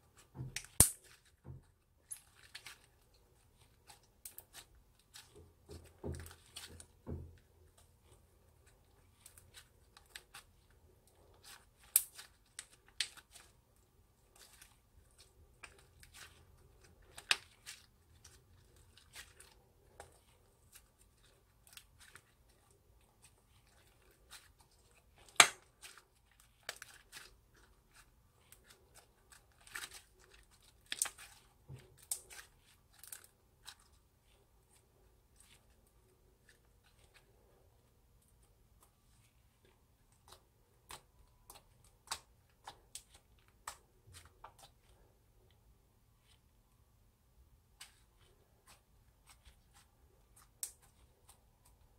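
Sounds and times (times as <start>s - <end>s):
slime crackling and popping: 0.5s - 1.3s, 11.4s - 13.5s.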